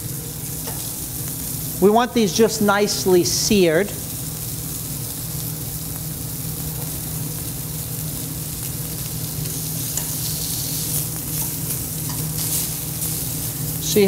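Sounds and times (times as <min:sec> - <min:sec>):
meat sizzling in a pan: 0:00.0 - 0:14.0
vent hood fan humming: 0:00.0 - 0:14.0.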